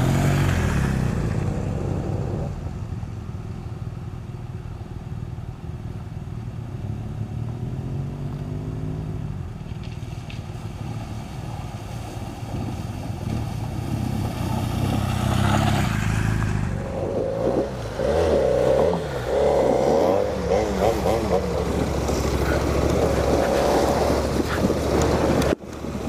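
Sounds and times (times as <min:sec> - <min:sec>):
motorcycle engine revving: 0:00.0 - 0:03.1, 0:06.5 - 0:09.5, 0:12.0 - 0:26.0
water splashing: 0:09.9 - 0:16.8.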